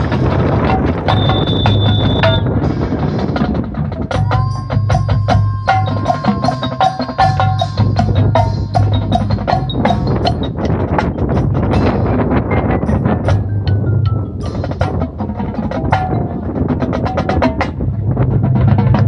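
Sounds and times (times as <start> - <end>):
marching band playing: 0.0 - 12.6
sharp clicking percussion strikes: 0.0 - 19.0
held low tone: 0.6 - 2.5.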